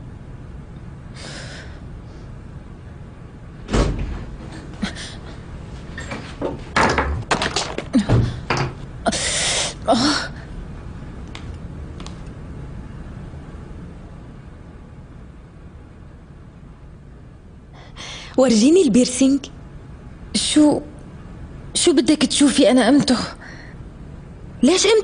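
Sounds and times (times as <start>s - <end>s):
knocks clicks and rustling: 6.0s - 8.8s.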